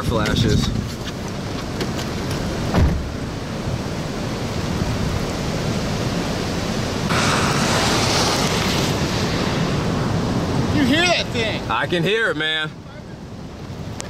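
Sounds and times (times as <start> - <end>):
heavy rain: 1.3 - 14.0
wind rushing: 2.6 - 11.8
thump: 2.7 - 3.1.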